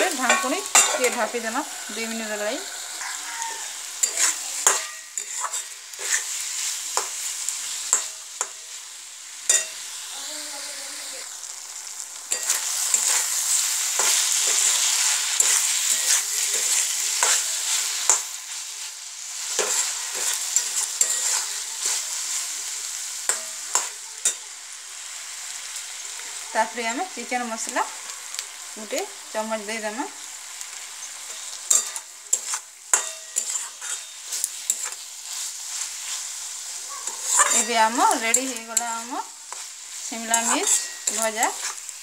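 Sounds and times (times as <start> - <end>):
metal spatula scraping a pan: 0.0 - 8.7, 9.5 - 9.8, 12.3 - 18.8, 19.4 - 24.5, 30.7 - 42.0
vegetables sizzling in oil: 0.0 - 42.0.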